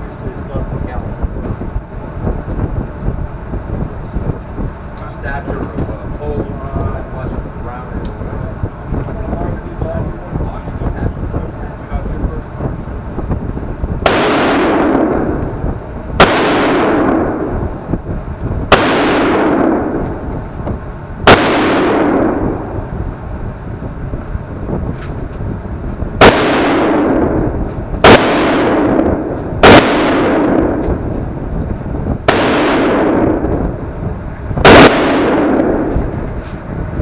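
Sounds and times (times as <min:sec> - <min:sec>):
gunshots in reverberant hall: 0:14.0 - 0:15.5, 0:16.2 - 0:17.9, 0:18.7 - 0:20.4, 0:21.2 - 0:22.9, 0:26.2 - 0:31.1, 0:32.2 - 0:33.7, 0:34.6 - 0:36.2
rifle shot echoing indoors: 0:14.0 - 0:15.6, 0:16.2 - 0:17.8, 0:18.7 - 0:20.4, 0:21.2 - 0:22.9, 0:26.2 - 0:31.1, 0:32.2 - 0:33.6, 0:34.6 - 0:36.2.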